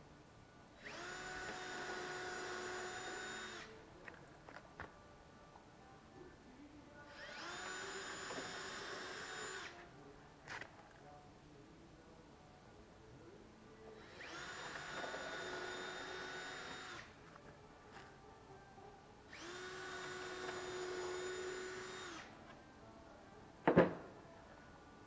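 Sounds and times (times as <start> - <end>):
cordless drill running: 0.8 - 3.7, 7.1 - 9.7, 14.1 - 17.1, 19.3 - 22.3.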